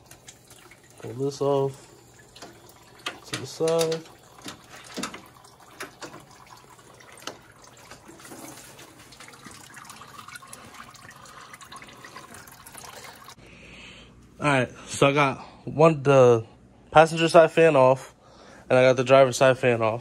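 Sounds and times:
liquid trickling out: 0.0s - 13.4s
parts clicking and knocking: 2.4s - 6.4s.

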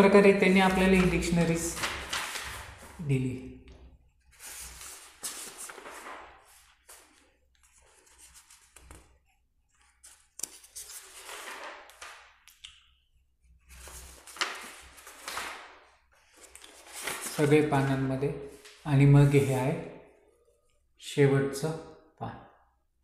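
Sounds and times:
book pages turning: 0.4s - 3.0s, 4.2s - 12.6s, 13.6s - 17.8s.

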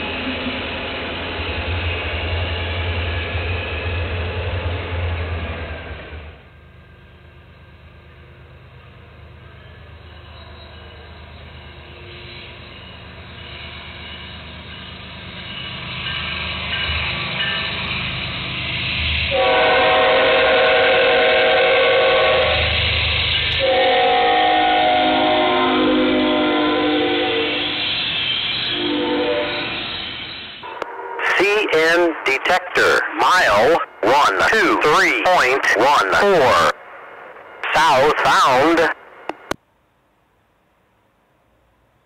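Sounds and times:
freight train rumble: 0.0s - 39.6s
train air horn blasts: 19.3s - 22.8s, 23.6s - 27.8s, 28.7s - 29.7s.

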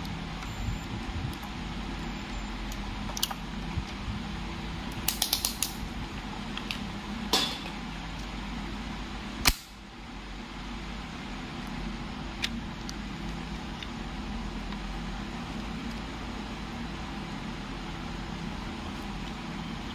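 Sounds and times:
steady background noise: 0.0s - 19.9s
circuit breaker snapping: 9.4s - 9.8s.

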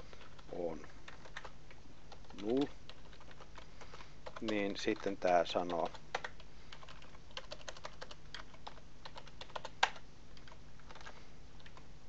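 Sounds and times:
typing on a keyboard: 0.2s - 11.8s.

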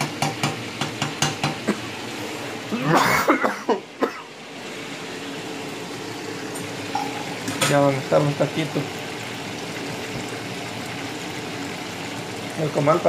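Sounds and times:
oil sizzling in a pan: 0.0s - 13.0s
person coughing: 2.7s - 4.3s.

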